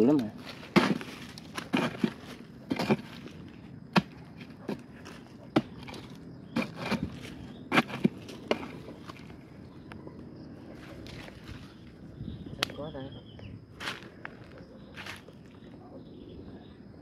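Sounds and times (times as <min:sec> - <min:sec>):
digging tool chopping into earth: 0:00.1 - 0:09.3.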